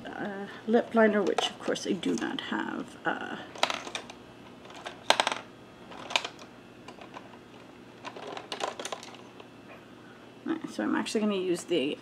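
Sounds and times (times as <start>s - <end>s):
cosmetic items clicking: 3.6s - 9.5s.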